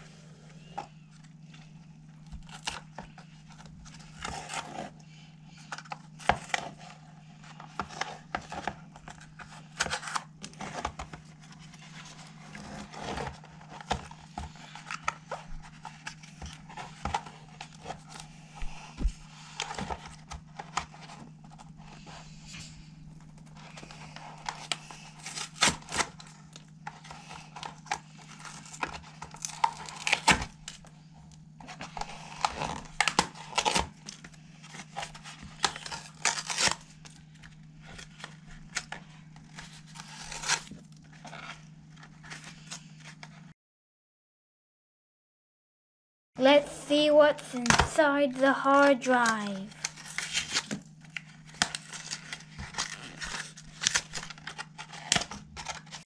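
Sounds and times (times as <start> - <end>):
cardboard box ripping and crinkling: 23.9 - 30.8, 31.8 - 37.4, 38.0 - 41.6, 48.8 - 56.0.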